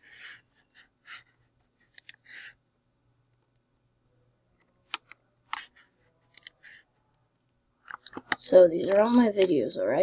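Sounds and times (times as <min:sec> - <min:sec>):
computer mouse clicking: 0:01.9 - 0:02.6, 0:04.6 - 0:05.7, 0:06.3 - 0:06.8, 0:07.8 - 0:09.6.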